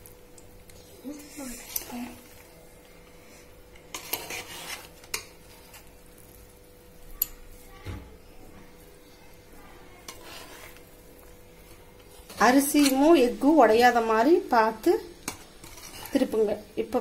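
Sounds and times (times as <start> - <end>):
metal ladle scraping metal pot: 3.9 - 5.3, 10.0 - 10.8, 15.6 - 16.2.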